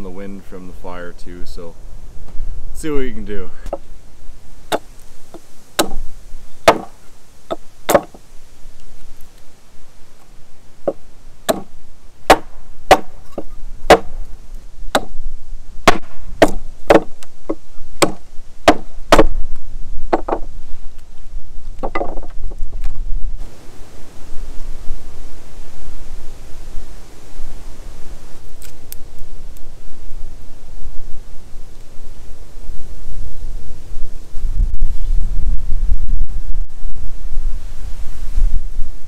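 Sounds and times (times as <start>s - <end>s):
wind rumble on microphone: 0.0s - 39.0s
axe chopping wood: 5.8s - 6.0s, 6.6s - 8.2s, 10.9s - 11.7s, 12.3s - 14.3s, 14.9s - 15.2s, 15.8s - 17.2s, 18.0s - 19.4s.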